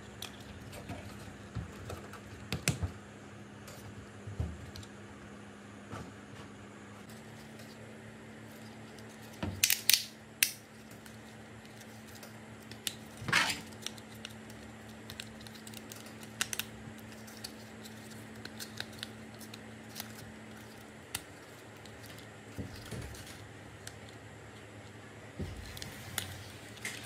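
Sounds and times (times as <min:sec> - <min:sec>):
plastic toy parts clicking and snapping: 0:09.6 - 0:10.6.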